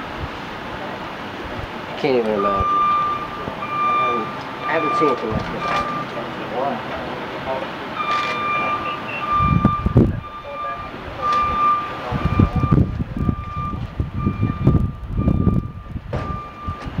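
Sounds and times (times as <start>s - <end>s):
low rumbling: 0.0s - 17.0s
vehicle backup alarm beeping: 2.2s - 6.7s, 7.4s - 17.0s.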